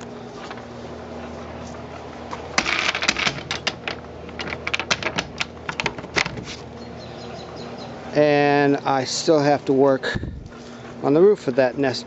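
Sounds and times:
metal latch clicking and rattling: 2.6 - 6.4.

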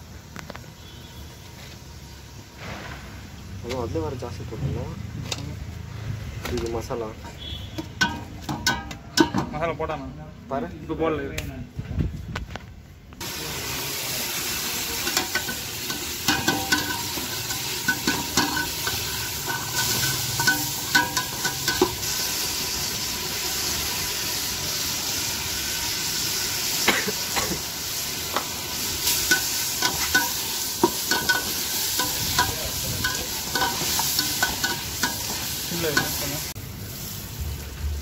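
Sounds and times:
meat sizzling in a pot: 13.2 - 38.0.

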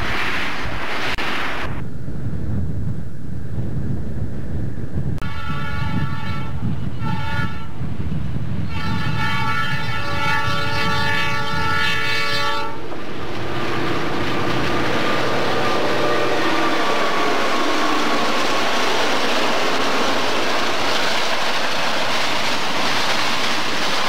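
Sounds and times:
locomotive engine and wheels rumbling: 0.0 - 24.0
locomotive air horn blasts: 5.2 - 7.7, 8.7 - 12.9, 15.2 - 20.4.

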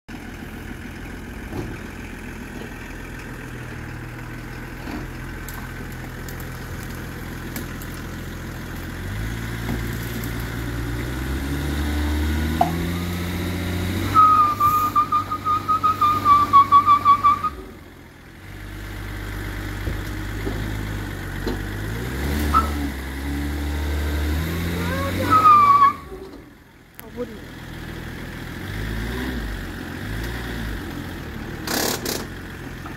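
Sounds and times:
diesel engine under load: 0.1 - 32.9
high wavering whistle: 14.1 - 17.6, 25.2 - 26.1.

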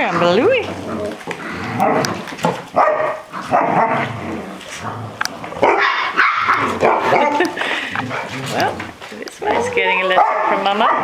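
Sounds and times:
puppies barking: 0.0 - 4.1, 5.5 - 8.8, 9.4 - 11.0.

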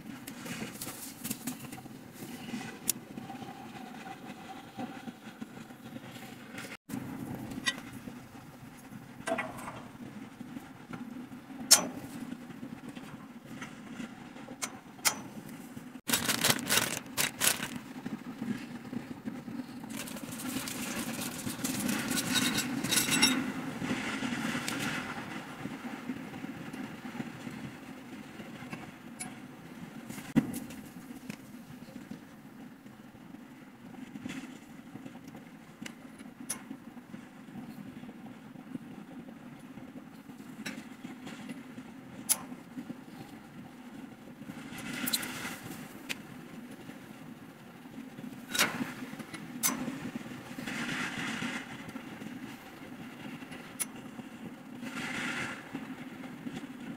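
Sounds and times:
metal rattling and scraping: 16.1 - 17.8, 19.9 - 23.5
steel tubes clinking and knocking: 21.5 - 23.4.

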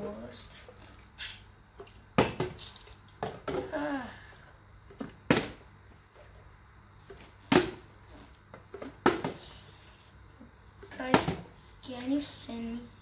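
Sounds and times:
plastic bottle hitting tiled floor: 2.2 - 3.7, 5.0 - 5.6, 7.1 - 7.9, 8.7 - 9.5.

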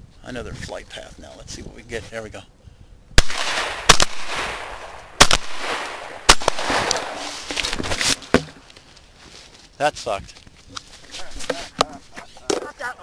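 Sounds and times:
shotgun shots with rolling echo: 3.2 - 7.5.

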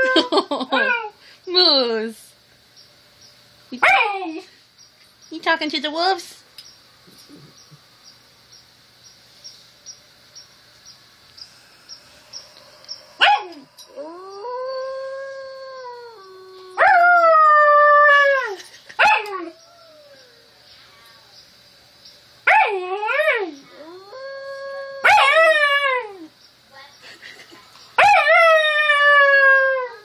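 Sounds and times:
puppy howling: 12.3 - 21.3, 22.5 - 26.3, 28.0 - 30.0.

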